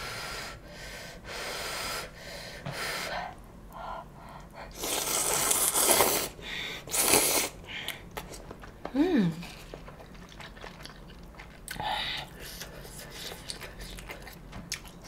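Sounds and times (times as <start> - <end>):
person eating: 4.7 - 15.0.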